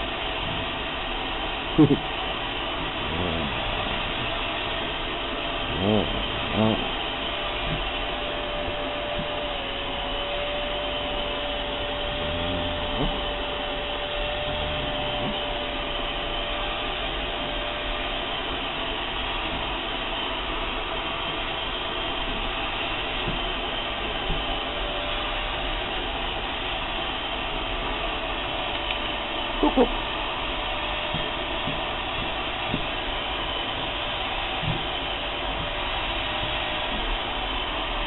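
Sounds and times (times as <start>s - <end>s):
vacuum cleaner whining: 0.0s - 38.0s
brief voice-like sounds: 5.7s - 7.0s.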